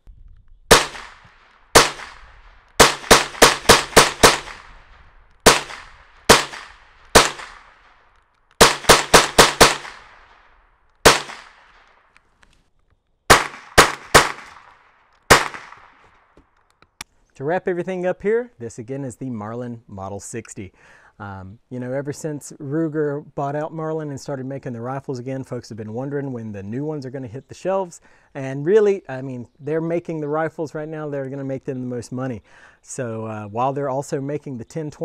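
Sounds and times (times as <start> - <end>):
rifle shots echoing: 0.7 - 12.2, 13.3 - 16.3.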